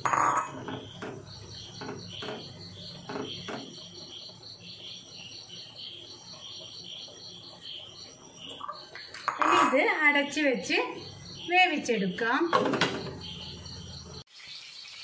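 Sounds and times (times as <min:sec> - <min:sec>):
wooden spatula scraping pot: 0:00.0 - 0:03.8, 0:09.2 - 0:09.9
cricket chirping: 0:00.0 - 0:14.2.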